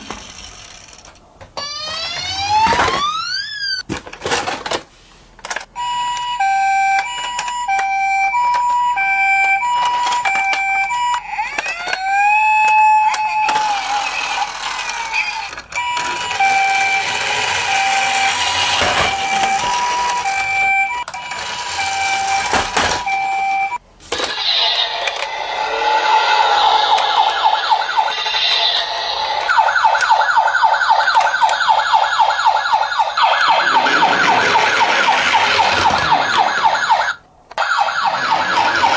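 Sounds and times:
toy whirring and clicking: 0.0s - 2.4s, 9.7s - 20.4s
toy rising siren wail: 1.6s - 3.8s, 5.8s - 38.9s
toy two-tone siren: 1.6s - 3.8s, 5.8s - 38.9s
toy warbling siren: 1.6s - 3.8s, 5.8s - 38.9s.

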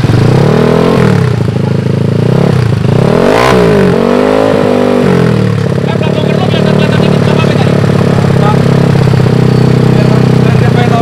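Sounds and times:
scooter engine revving: 0.0s - 11.0s.

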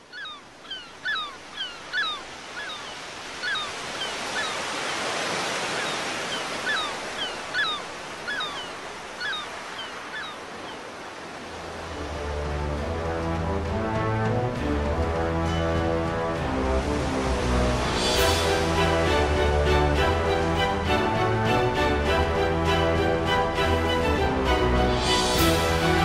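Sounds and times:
ocean surf: 0.0s - 26.0s
gull calls: 0.1s - 4.7s, 5.7s - 10.8s.

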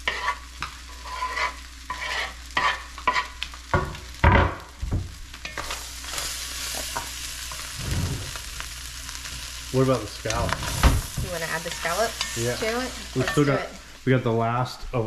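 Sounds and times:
spatula scraping cutting board: 0.0s - 3.3s, 7.8s - 8.4s
shrimp sizzling in grease: 0.0s - 14.6s
loud thump: 7.8s - 8.4s.

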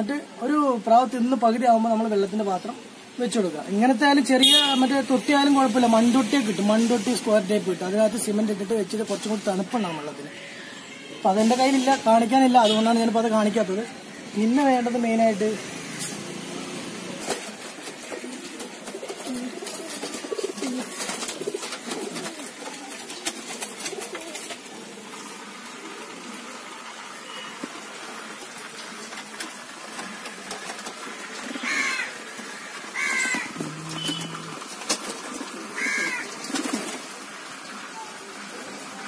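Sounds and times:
pigeons cooing: 15.6s - 39.0s.

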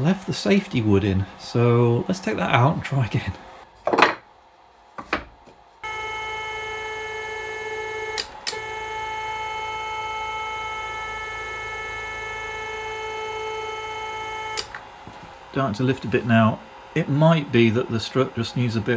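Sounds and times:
stepper motor whine: 5.8s - 15.2s.

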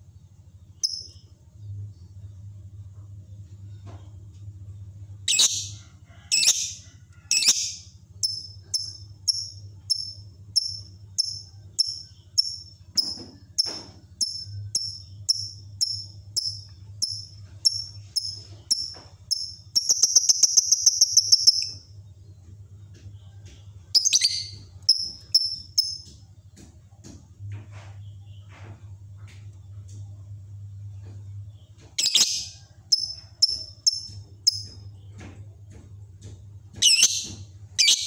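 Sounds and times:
faint low hum: 0.0s - 38.0s
bird chirping and trilling: 5.2s - 21.8s, 24.0s - 26.0s, 32.0s - 34.7s, 36.8s - 38.0s.

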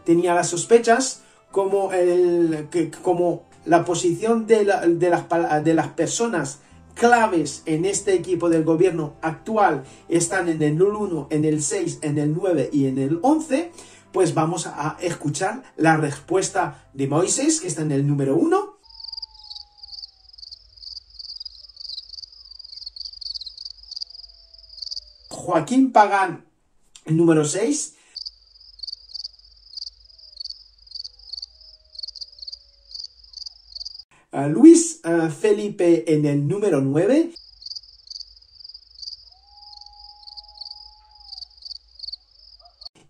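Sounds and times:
crickets chirping: 18.8s - 25.4s, 28.0s - 34.1s, 37.3s - 42.9s.

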